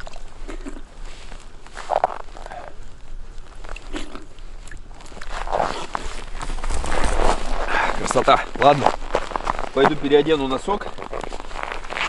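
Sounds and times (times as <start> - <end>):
water dripping: 0.0 - 0.6, 2.8 - 5.4
man sipping water: 0.0 - 6.4
snow crunching: 4.9 - 12.0.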